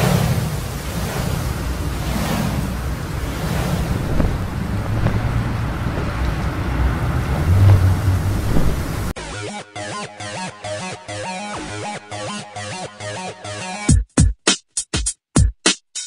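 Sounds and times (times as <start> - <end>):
rushing wind: 0.0 - 9.2.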